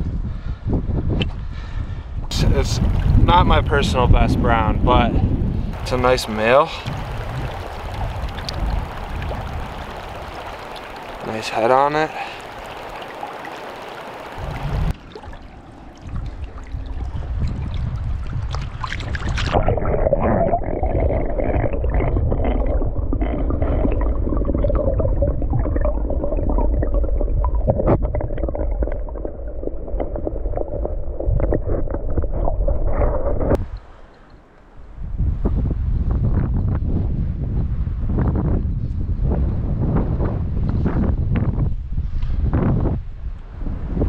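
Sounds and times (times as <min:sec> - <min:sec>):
muffled underwater river rumble: 0:02.2 - 0:33.6
water gurgling: 0:02.3 - 0:05.1, 0:05.7 - 0:33.4.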